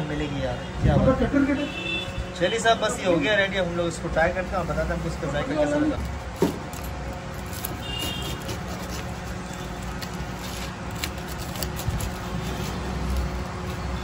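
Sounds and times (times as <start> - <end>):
steady background hum: 0.0 - 14.0
pizza cutter crunching through sandwich: 6.0 - 14.0.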